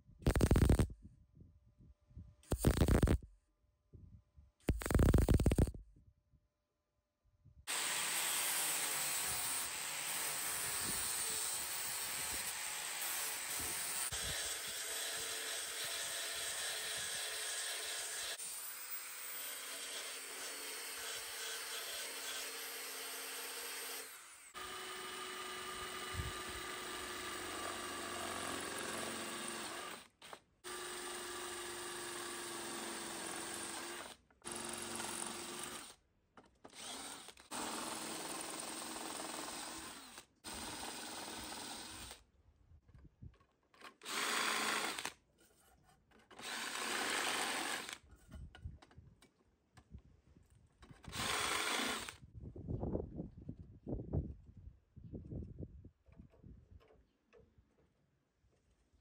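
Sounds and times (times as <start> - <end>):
drill cutting through metal: 7.7 - 36.0, 36.7 - 42.2, 44.0 - 45.1, 46.4 - 48.0, 51.1 - 52.2.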